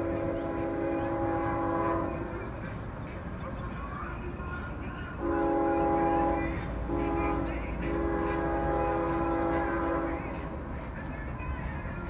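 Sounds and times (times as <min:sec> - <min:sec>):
locomotive air horn blasts: 0:00.0 - 0:02.2, 0:05.2 - 0:10.2
passing train rumble: 0:00.0 - 0:12.0.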